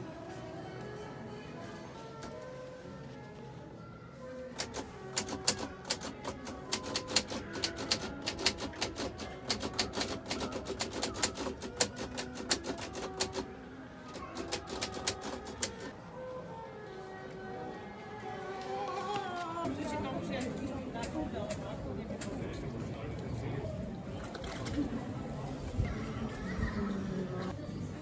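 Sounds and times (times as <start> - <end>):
rapid irregular clicking: 4.6 - 13.5, 14.1 - 15.9.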